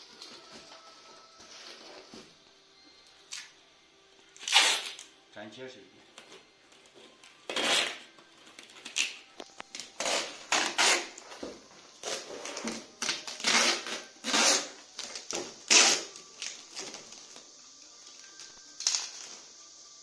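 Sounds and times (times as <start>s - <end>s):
packing tape pulled off roll: 3.1s - 3.6s, 4.3s - 5.2s, 6.1s - 19.6s.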